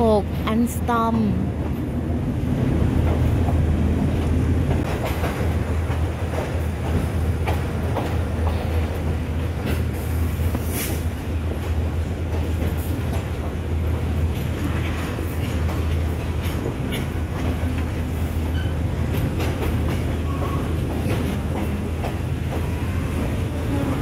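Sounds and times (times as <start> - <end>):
rail joints clacking: 0.0 - 24.0
train wheels rolling: 1.6 - 24.0.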